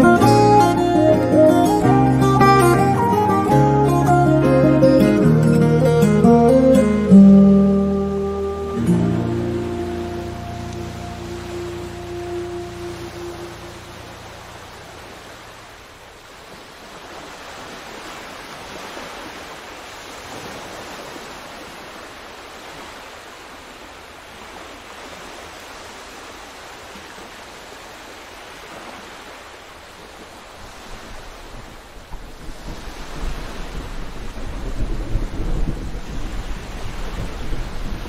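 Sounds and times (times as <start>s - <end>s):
wind on microphone: 30.4s - 38.0s
surf breaking: 30.5s - 38.0s.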